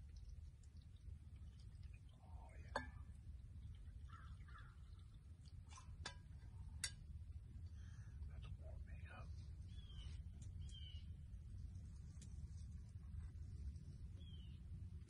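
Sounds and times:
hot drink pouring: 0.0s - 7.7s
low steady rumble: 0.0s - 15.0s.

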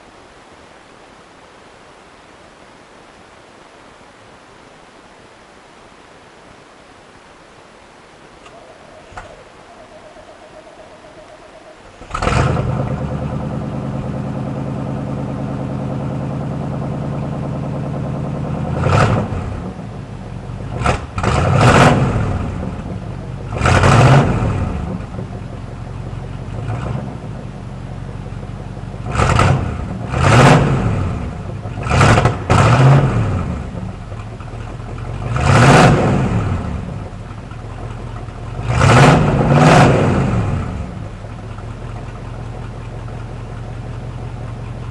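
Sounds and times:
pickup engine starting and revving: 11.2s - 44.9s.

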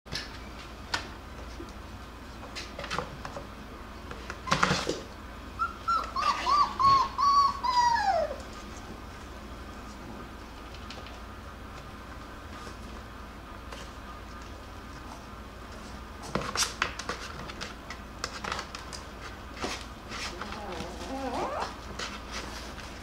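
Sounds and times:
puppy whining: 5.6s - 8.7s, 20.3s - 21.9s.

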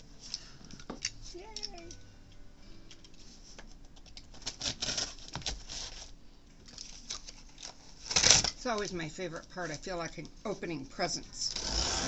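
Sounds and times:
box cutter slicing cardboard: 11.5s - 12.0s.

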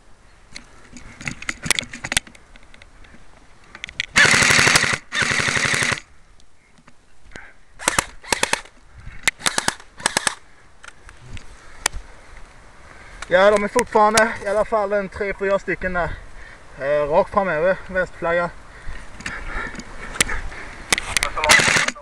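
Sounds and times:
airsoft gun firing bursts: 4.1s - 6.0s, 7.8s - 8.7s, 9.4s - 10.4s, 21.4s - 22.0s.

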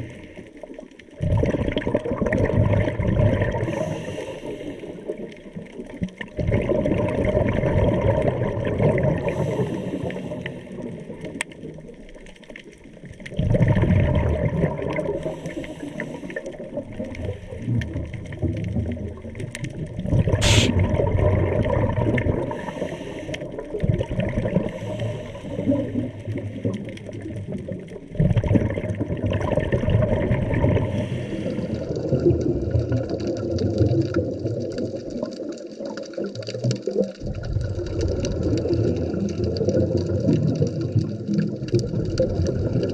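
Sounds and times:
underwater bubbles gurgling: 0.0s - 42.9s
regulator inhalations: 20.4s - 20.7s.

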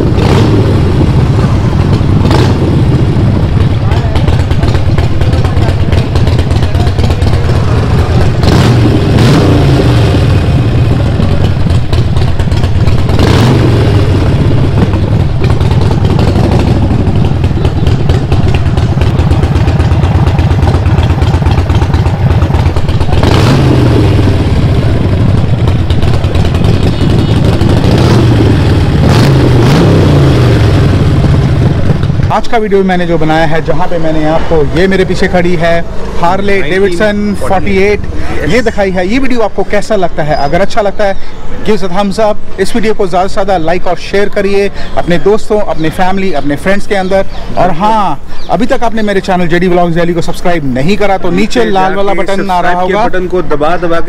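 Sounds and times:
motorcycle throttle blips: 0.0s - 35.3s
motorcycle engine idling: 0.0s - 54.0s.

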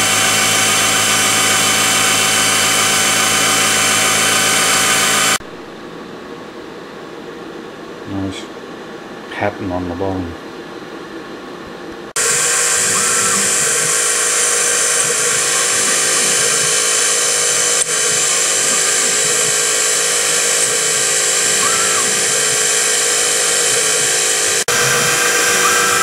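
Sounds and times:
mill spindle whining: 0.0s - 5.4s, 12.1s - 26.0s.

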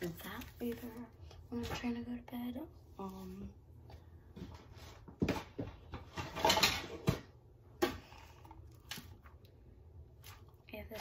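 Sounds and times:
belongings rustling and clattering: 4.3s - 7.4s.

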